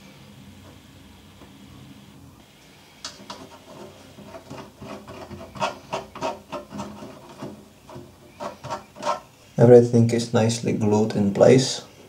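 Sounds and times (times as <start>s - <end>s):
hand tool scraping carbon fibre: 3.3s - 9.3s.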